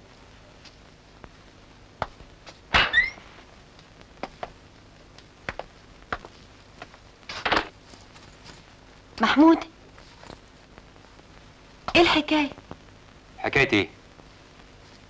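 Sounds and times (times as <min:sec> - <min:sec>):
door opening with squeak: 0:02.8 - 0:03.2
rustling shuffle: 0:05.1 - 0:09.1, 0:09.8 - 0:11.4, 0:14.2 - 0:15.0.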